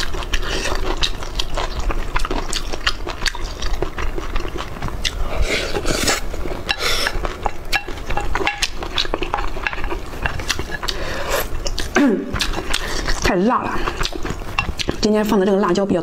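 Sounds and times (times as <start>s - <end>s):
wet chewing and smacking: 0.0s - 15.9s
utensils clinking against a bowl: 5.7s - 15.7s.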